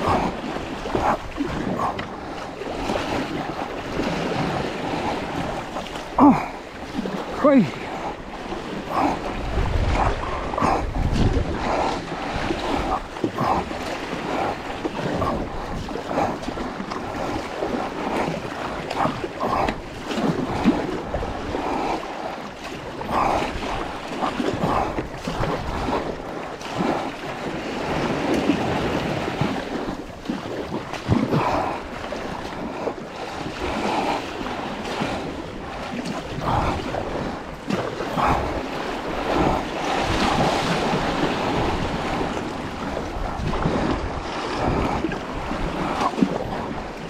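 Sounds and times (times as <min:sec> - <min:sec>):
heavy rhythmic breathing: 0:00.0 - 0:03.1, 0:04.8 - 0:20.0, 0:23.0 - 0:25.1, 0:36.3 - 0:37.4, 0:38.0 - 0:40.0
sea water rushing and slapping: 0:00.0 - 0:47.0
wind buffeting microphone: 0:00.0 - 0:47.0.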